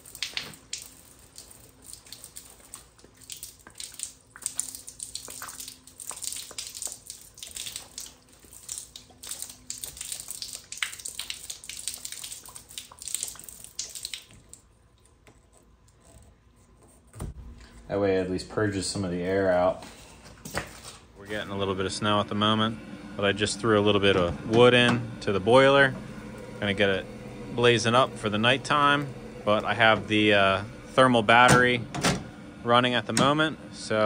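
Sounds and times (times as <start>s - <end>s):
water and air sputtering and spraying: 21.2s - 31.8s.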